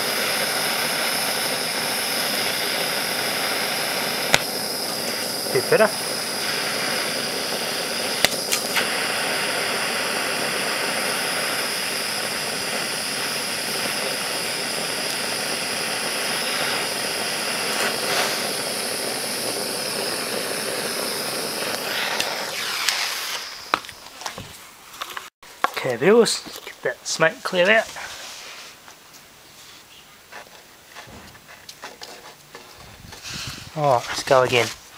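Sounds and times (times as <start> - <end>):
blowtorch flame hissing: 0.0 - 25.4, 31.0 - 34.6
capacitors popping: 1.4 - 25.9.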